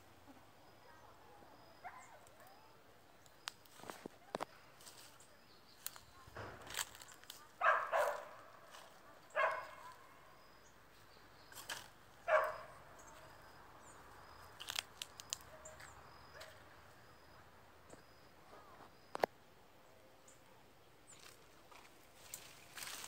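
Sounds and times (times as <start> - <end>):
dog barking: 1.8 - 2.2, 7.6 - 8.6, 9.2 - 10.1, 12.3 - 12.8
twigs snapping underfoot: 3.2 - 5.1, 5.8 - 7.5, 11.5 - 12.0, 14.6 - 15.5, 21.1 - 23.0.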